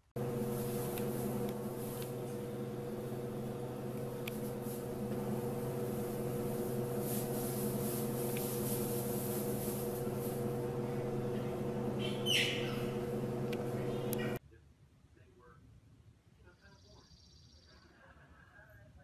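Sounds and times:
steady mechanical hum: 0.0s - 17.4s
jaguar cub squealing: 12.0s - 12.9s.

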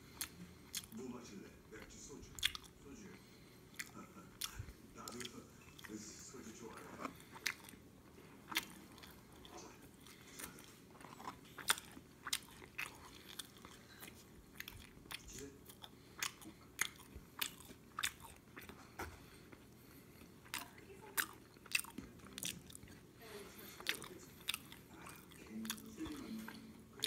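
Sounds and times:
person chewing food: 0.0s - 1.1s, 1.7s - 27.0s
mouth clicks and crunches: 2.4s - 2.8s, 8.5s - 18.8s.

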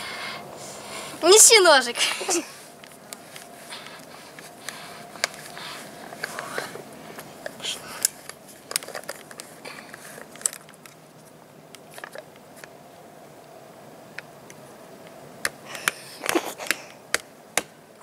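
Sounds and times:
plastic cap clicking and crackling: 7.4s - 11.0s.

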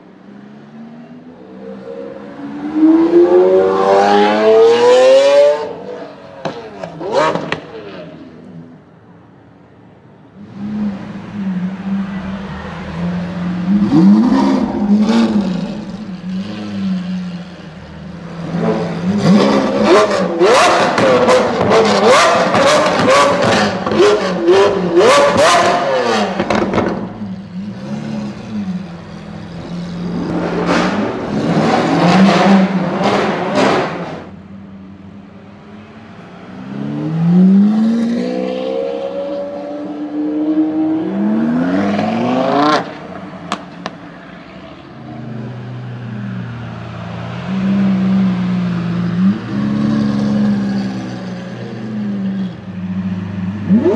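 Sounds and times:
car engine revving: 10.4s - 34.4s, 36.4s - 44.0s, 53.5s - 53.9s
exhaust pops and bangs: 26.4s - 27.2s.

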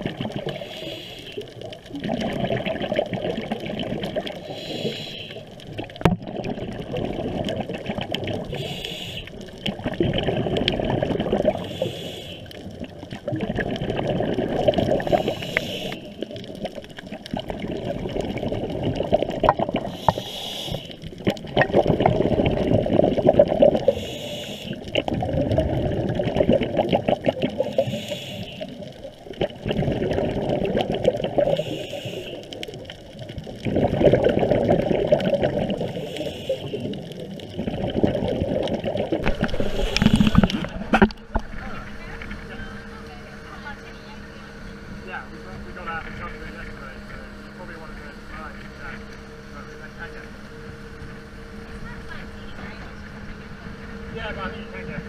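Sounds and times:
underwater bubbles gurgling: 0.0s - 55.0s
regulator hiss: 0.4s - 1.5s, 4.4s - 5.6s, 8.5s - 9.5s, 11.5s - 12.6s, 14.9s - 16.3s, 19.8s - 21.1s, 23.8s - 25.0s, 27.6s - 28.9s, 31.4s - 32.6s, 35.8s - 37.0s, 39.2s - 40.8s.

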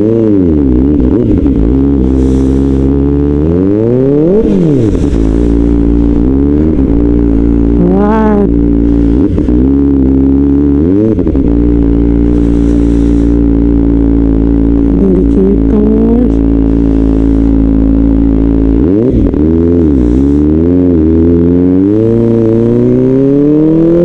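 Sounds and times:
motorcycle engine throttle blips: 0.0s - 24.0s.

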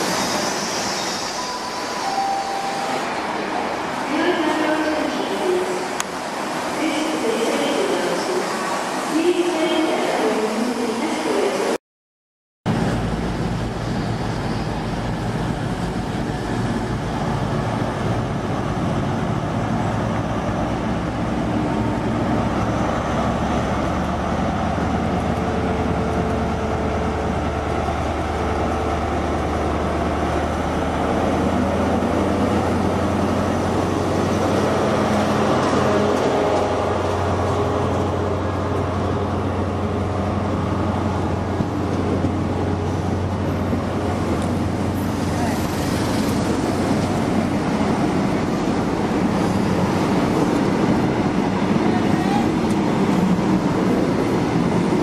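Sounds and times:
diesel train engine drone: 12.7s - 55.0s.

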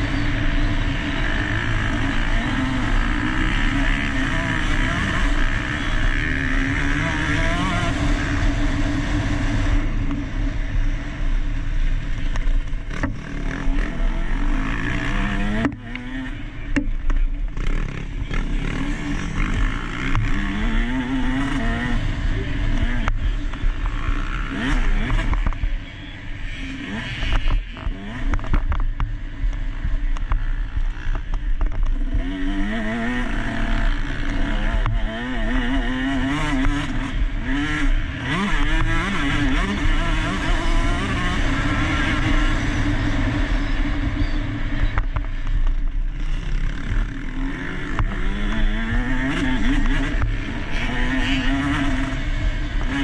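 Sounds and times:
motocross engine revving: 0.0s - 29.0s, 29.6s - 53.0s.

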